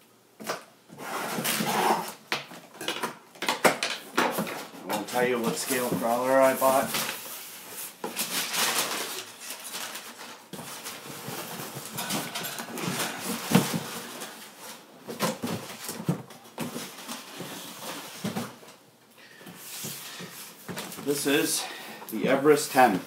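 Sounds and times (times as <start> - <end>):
packing paper rustling: 4.3 - 18.8, 19.4 - 23.0.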